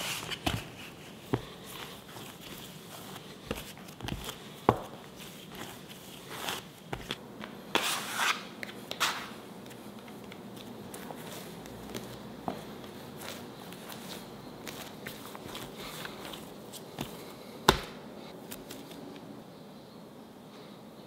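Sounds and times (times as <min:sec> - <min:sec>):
dough rubbing scrapes: 0:00.0 - 0:17.3
dough thumping and slapping on wood: 0:17.6 - 0:18.0.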